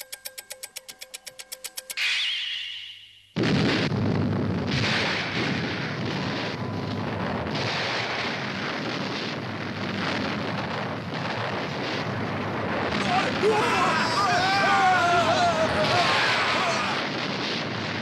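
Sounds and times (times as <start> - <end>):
bright ringing tone: 0.0 - 3.4
cartoon explosion rumbling: 3.4 - 18.0.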